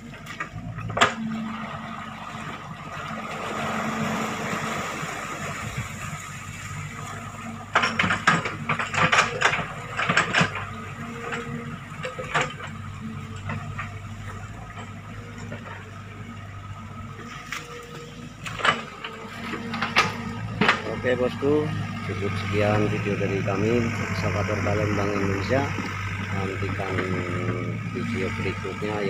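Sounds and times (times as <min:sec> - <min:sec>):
excavator diesel engine running: 0:00.0 - 0:29.0
sharp knocks and clatter: 0:07.7 - 0:12.8, 0:18.4 - 0:21.2.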